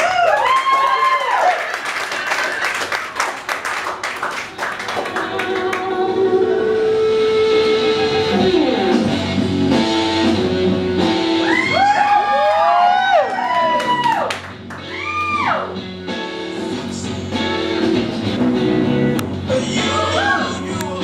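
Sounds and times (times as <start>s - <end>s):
people clapping: 0.0s - 6.0s, 11.9s - 15.4s
song with guitar and singing: 4.8s - 11.7s, 14.8s - 21.0s.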